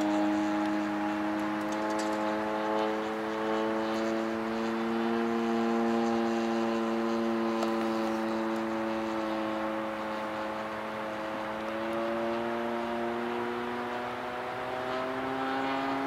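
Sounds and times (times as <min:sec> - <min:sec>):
model plane engine buzzing: 0:00.0 - 0:16.0.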